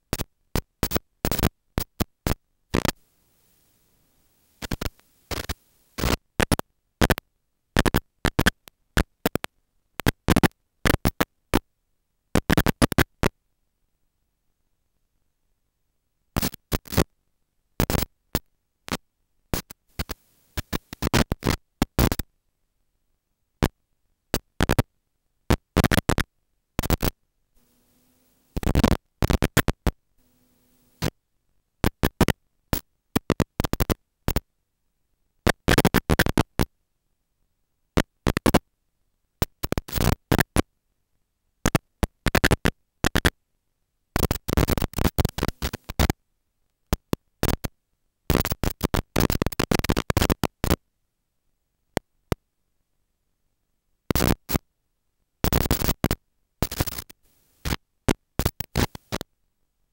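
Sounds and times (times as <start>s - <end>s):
crackling static bursts: 0.0s - 11.7s, 12.4s - 13.4s, 16.4s - 17.1s, 17.8s - 22.3s, 25.5s - 31.2s, 31.8s - 34.5s, 38.0s - 38.6s, 39.4s - 40.7s, 41.6s - 43.3s, 44.2s - 46.2s, 46.9s - 47.7s, 48.3s - 50.8s, 54.1s - 54.6s, 55.4s - 59.3s.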